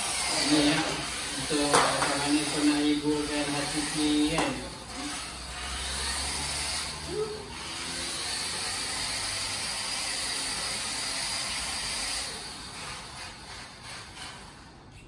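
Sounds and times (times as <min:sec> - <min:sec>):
toy truck motor whirring: 0:00.0 - 0:15.0.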